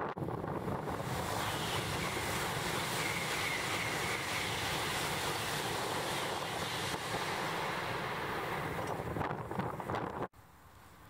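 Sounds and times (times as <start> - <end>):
train rushing past: 0.3 - 9.2
faint high whine: 1.0 - 8.9.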